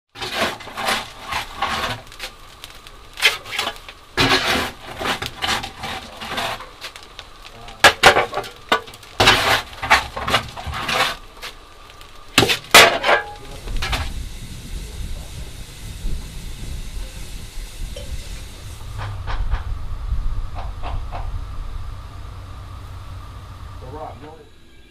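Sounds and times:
coal shovel scraping and clanking: 0.1s - 7.1s, 7.8s - 11.6s, 12.4s - 14.2s, 18.0s - 19.7s
steam locomotive idling rumble and hiss: 0.2s - 24.9s.

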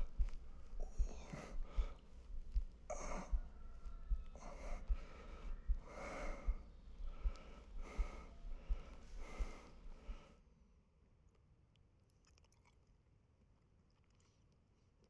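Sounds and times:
person breathing heavily: 0.0s - 10.4s.

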